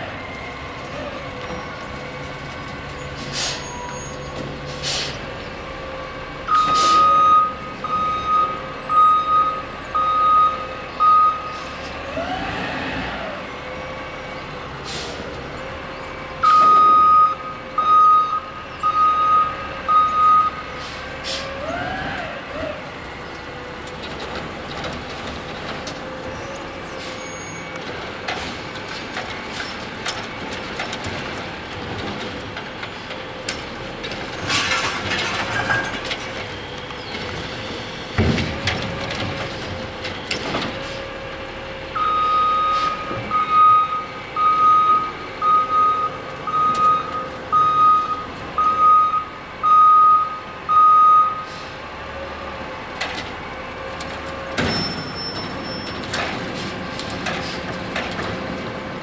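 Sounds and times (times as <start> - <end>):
air brakes hissing: 3.1 - 5.2, 14.8 - 15.3, 20.6 - 21.6, 26.9 - 27.6, 37.4 - 38.2, 40.7 - 41.2, 42.7 - 43.1, 51.4 - 51.9, 54.7 - 57.8
reversing alarm beeping: 6.4 - 11.6, 16.4 - 20.8, 42.0 - 51.5.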